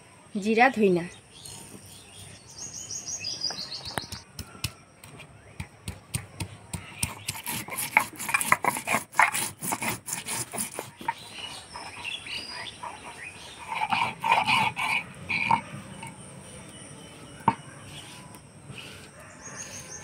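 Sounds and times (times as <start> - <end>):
stone roller crushing seeds: 4.0 - 20.0.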